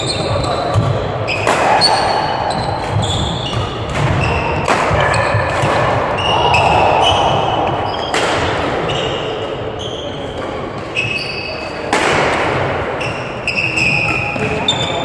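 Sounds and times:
racket striking shuttlecock: 0:00.6 - 0:09.1.

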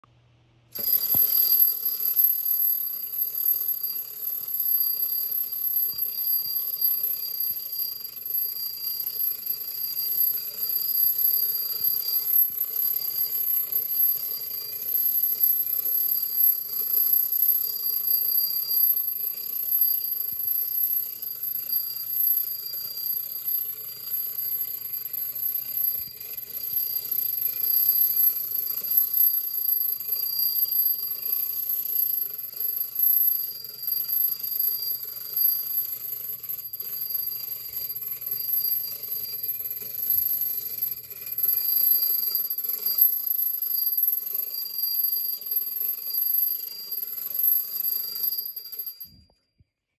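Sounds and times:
clockwork toy gears rattling: 0:00.8 - 0:49.2.

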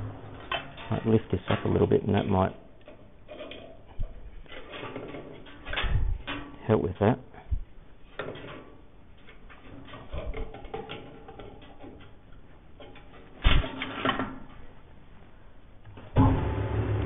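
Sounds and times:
small metallic clicks and rattles: 0:00.4 - 0:07.1, 0:08.1 - 0:14.6.

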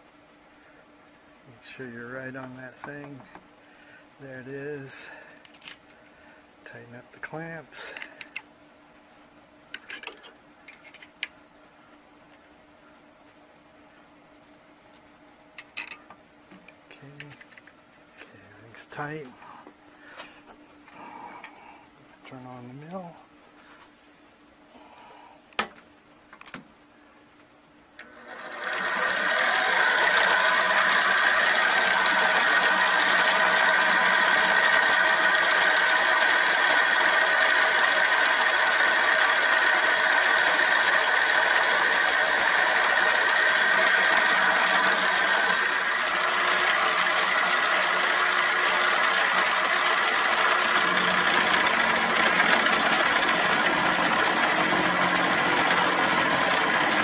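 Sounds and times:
milling machine cutting metal: 0:28.0 - 0:57.0.

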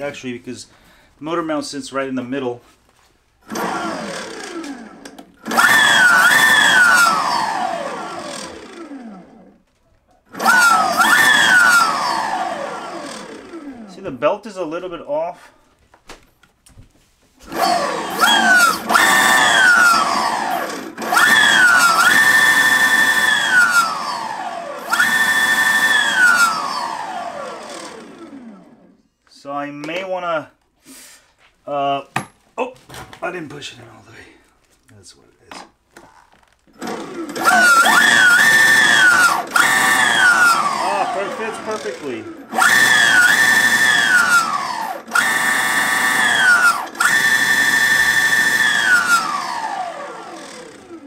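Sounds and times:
electric motor whining: 0:03.5 - 0:09.6, 0:10.3 - 0:13.9, 0:17.4 - 0:28.8, 0:36.8 - 0:51.0.

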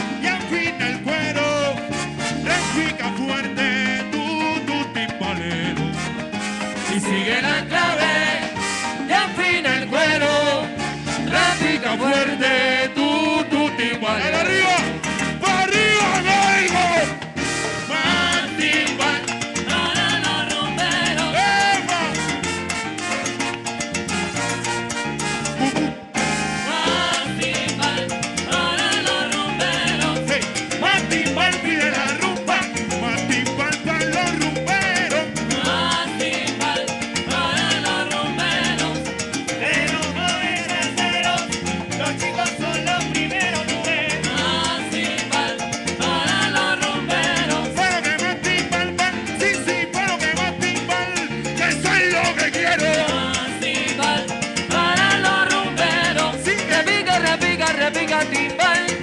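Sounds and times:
latin dance band playing salsa: 0:00.0 - 0:59.0
people singing: 0:06.8 - 0:22.3, 0:26.2 - 0:59.0
drums and percussion: 0:14.7 - 0:59.0.

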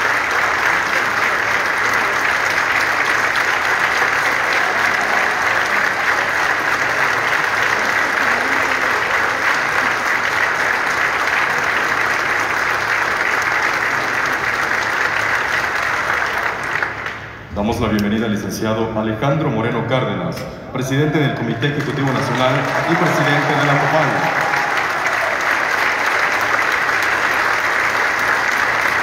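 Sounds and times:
large crowd applauding: 0:00.0 - 0:17.5, 0:21.4 - 0:29.0.

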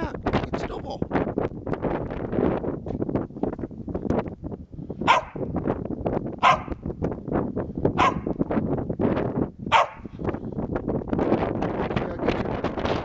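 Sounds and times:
dog barking: 0:05.1 - 0:05.4, 0:06.4 - 0:06.8, 0:08.0 - 0:08.3, 0:09.7 - 0:10.1.

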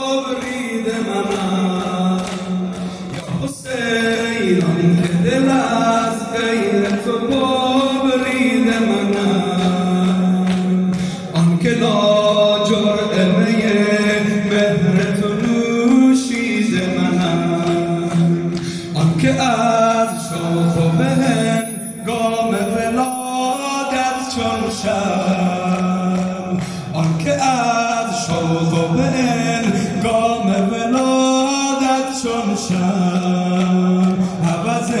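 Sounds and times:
man singing lament through loudspeakers: 0:00.0 - 0:35.0.

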